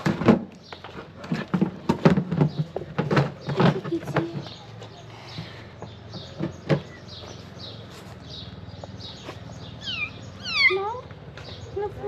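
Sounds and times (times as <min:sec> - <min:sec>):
small bird chirping: 0:03.4 - 0:12.0.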